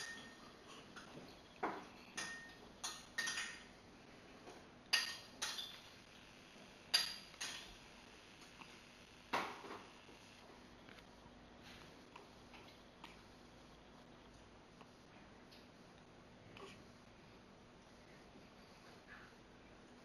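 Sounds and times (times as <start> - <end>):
sharp clinks and knocks: 0.0 - 0.4, 2.1 - 3.7.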